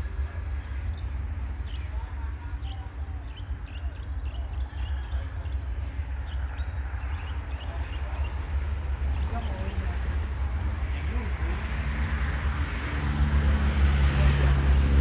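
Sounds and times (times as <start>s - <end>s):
small birds chirping: 0.0s - 11.9s
distant diesel locomotive rumble: 0.0s - 15.0s.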